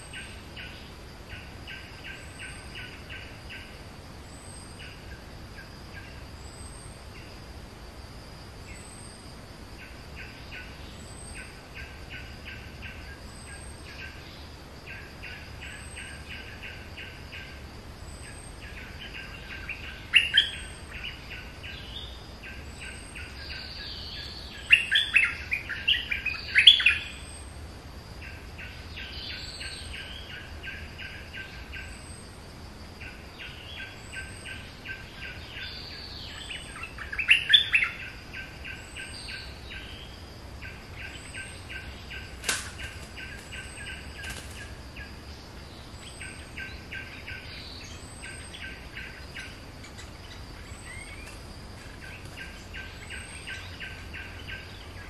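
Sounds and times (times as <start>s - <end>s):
birds chattering calls: 33.0s - 55.0s.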